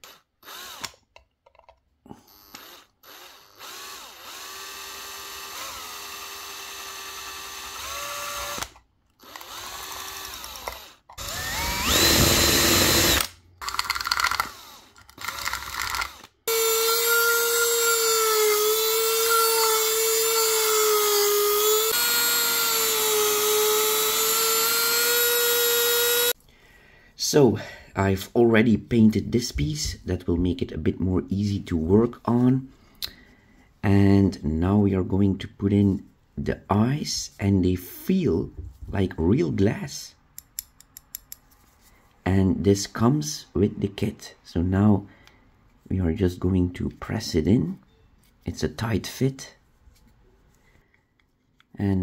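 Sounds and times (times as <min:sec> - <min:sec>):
rotary tool sanding whine: 0:00.0 - 0:00.8, 0:02.6 - 0:26.4
power drill whining: 0:00.0 - 0:01.0, 0:02.2 - 0:26.4.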